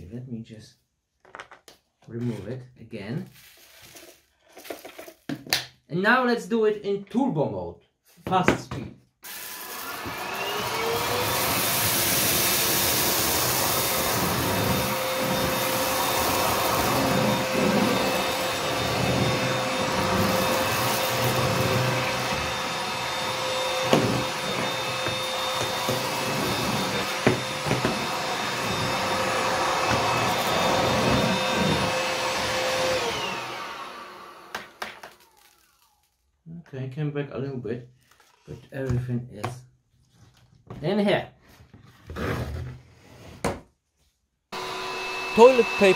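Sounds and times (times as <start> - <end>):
stick vacuum motor whine: 9.3 - 35.6, 44.6 - 45.9.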